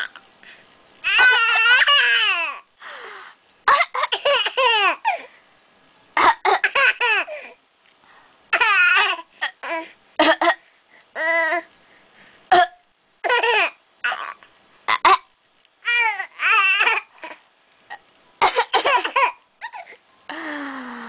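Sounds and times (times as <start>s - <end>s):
baby laughing: 1.0s - 2.5s.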